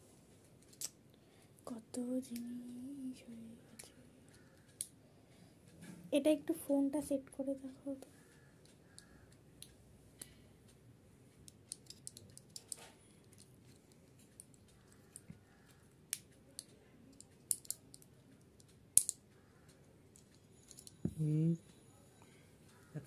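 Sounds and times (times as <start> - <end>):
fingers clicking small remote: 8.3 - 10.3.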